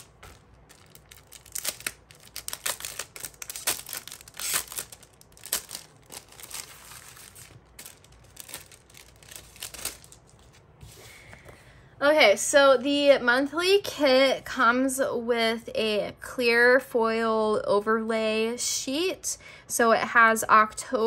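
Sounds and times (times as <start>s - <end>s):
plastic sleeve crinkling: 0.0s - 10.8s.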